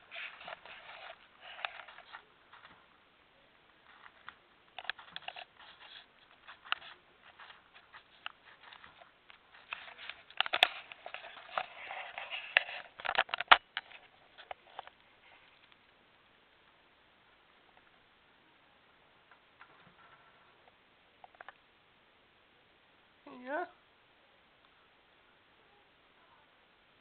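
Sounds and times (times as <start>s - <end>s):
hamster gnawing and chewing: 0.0s - 3.0s, 3.7s - 16.0s.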